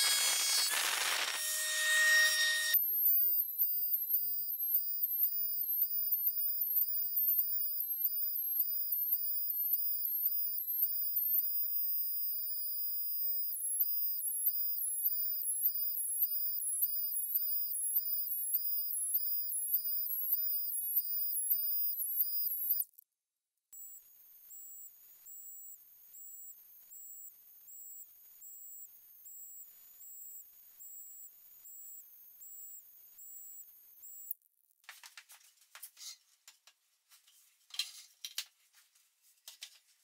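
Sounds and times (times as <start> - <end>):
high-pitched two-tone electronic tone: 0.0 - 8.4.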